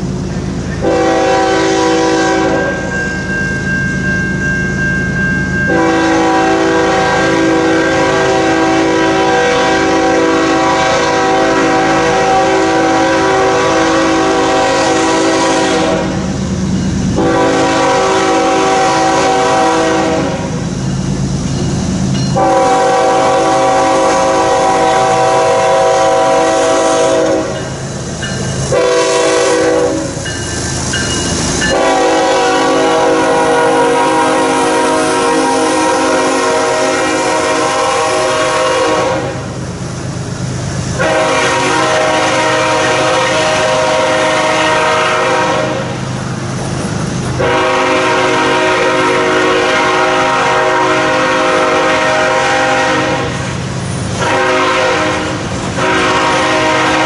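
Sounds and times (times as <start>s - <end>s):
train rumble: 0.0s - 57.0s
locomotive air horn blasts: 0.8s - 2.9s, 5.7s - 16.4s, 17.1s - 20.6s, 22.3s - 27.7s, 28.6s - 30.2s, 31.6s - 39.6s, 40.9s - 46.0s, 47.3s - 57.0s
train wheels clacking: 20.3s - 22.9s, 26.7s - 36.0s.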